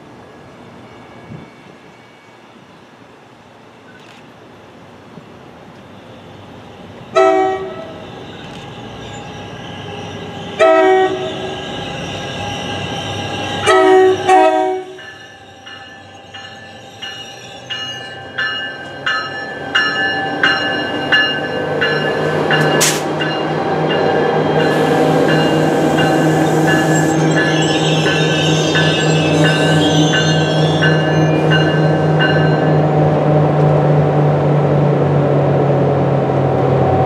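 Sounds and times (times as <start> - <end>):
locomotive air horn blasts: 7.2 - 8.1, 10.6 - 11.8, 13.6 - 15.0
locomotive bell ringing: 7.8 - 33.0.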